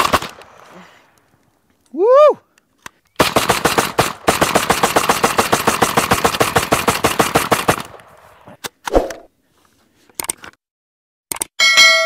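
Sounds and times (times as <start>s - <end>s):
rapid shotgun fire: 0.0s - 0.6s, 3.2s - 8.0s.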